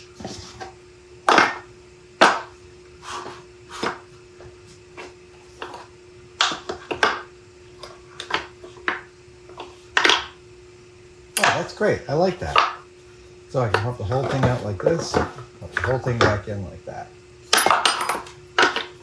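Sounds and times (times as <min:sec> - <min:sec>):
steady hum: 0:00.0 - 0:19.0
metal parts knocking and clinking: 0:17.5 - 0:19.0.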